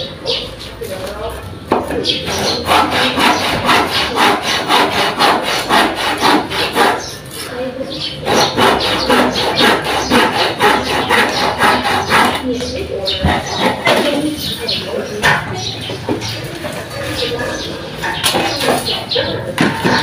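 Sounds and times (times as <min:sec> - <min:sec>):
handsaw cutting wood: 0:02.3 - 0:07.4, 0:08.2 - 0:12.6.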